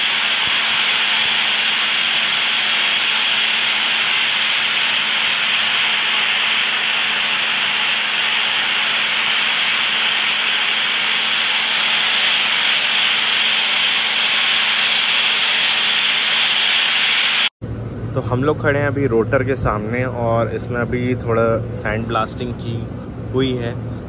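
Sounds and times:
sandblasting nozzle hissing: 0.0s - 17.5s.

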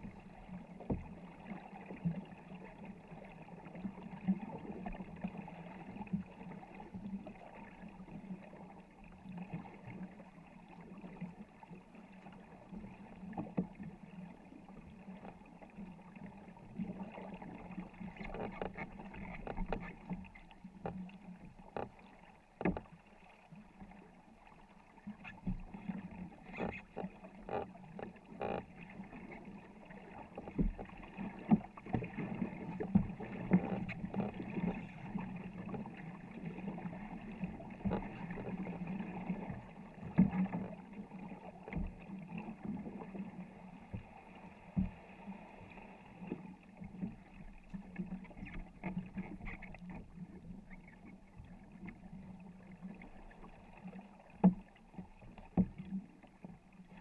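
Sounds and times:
water washing along hull: 0.0s - 57.0s
paddles dipping and splashing: 16.5s - 23.1s, 25.0s - 57.0s.

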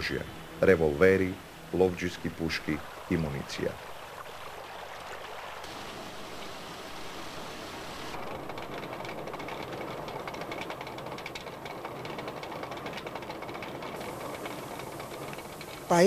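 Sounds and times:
water rushing: 0.0s - 11.7s, 13.6s - 16.0s
watermill clattering: 8.1s - 16.0s.

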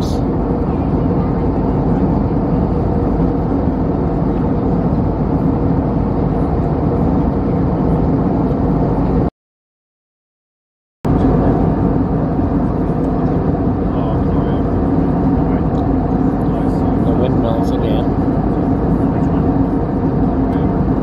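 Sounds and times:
jet airliner cabin drone: 0.0s - 9.3s, 11.1s - 21.0s.

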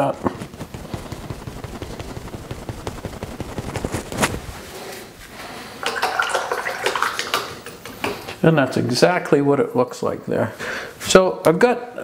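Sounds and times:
brush dabbing on paper: 0.0s - 4.7s.

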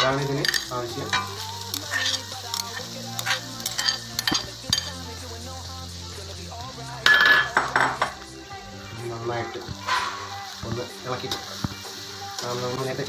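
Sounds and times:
metal spoon scraping a wok: 1.9s - 2.3s, 9.8s - 10.4s.

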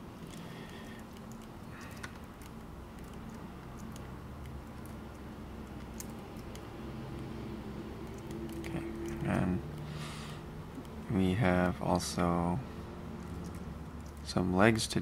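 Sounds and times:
low steady hum: 0.0s - 15.0s
keyboard and mouse clicks: 0.3s - 7.3s, 8.0s - 9.9s.

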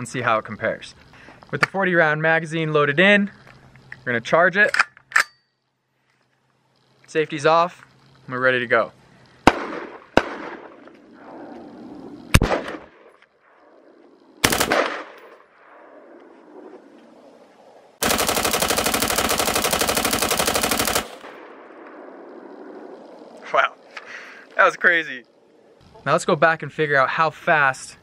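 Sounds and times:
gunshot echo: 9.4s - 10.9s, 12.3s - 13.1s, 14.4s - 15.8s
rifle single shots: 9.4s - 10.9s, 12.3s - 13.2s, 14.4s - 15.9s, 18.0s - 22.1s
rapid gunfire burst: 14.4s - 15.2s, 18.0s - 21.5s.

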